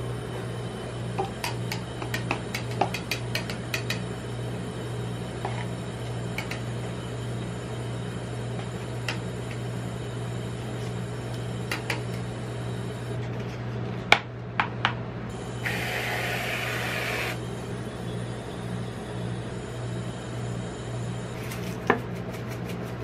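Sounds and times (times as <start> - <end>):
machine low hum: 0.0 - 23.0
aerosol cream spray hiss: 15.6 - 17.4.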